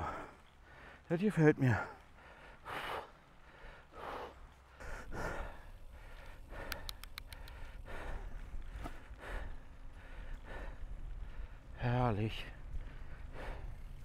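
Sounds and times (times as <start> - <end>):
person breathing hard: 1.9 - 11.7, 12.9 - 14.0
faint short clicks: 6.2 - 7.7.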